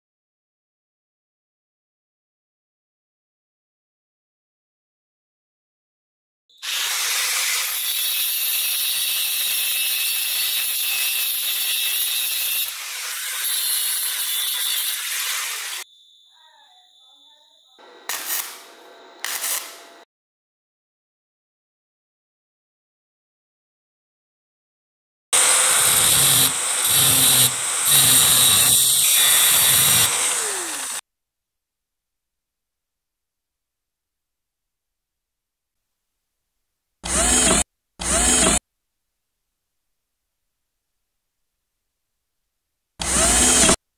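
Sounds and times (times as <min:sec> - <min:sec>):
angle grinder cutting steel: 0:06.5 - 0:15.9, 0:17.8 - 0:20.0, 0:25.4 - 0:31.0, 0:37.0 - 0:38.6, 0:43.0 - 0:43.8
grinder disc spinning down: 0:25.4 - 0:31.0.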